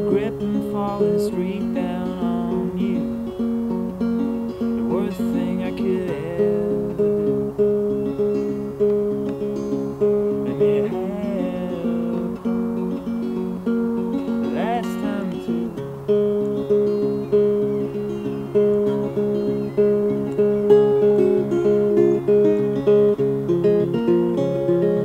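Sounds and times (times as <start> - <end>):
fingerpicked acoustic guitar: 0.0 - 25.0
wordless vocal glide: 10.4 - 12.7, 14.4 - 15.8.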